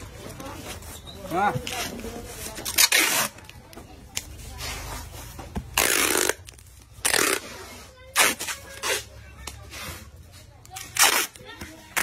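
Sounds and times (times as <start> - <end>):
packing tape ripping off roll: 2.6 - 3.8, 5.7 - 9.1, 10.7 - 12.0.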